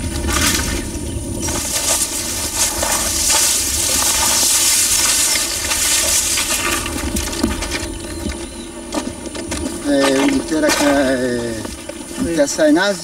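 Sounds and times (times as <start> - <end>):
wind rumble on microphone: 0.0 - 9.8
twigs and leaves crackling: 0.0 - 13.0.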